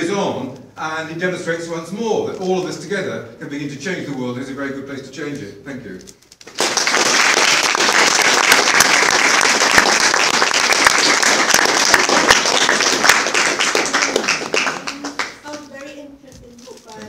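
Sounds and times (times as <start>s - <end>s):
audience applauding: 6.4s - 15.7s.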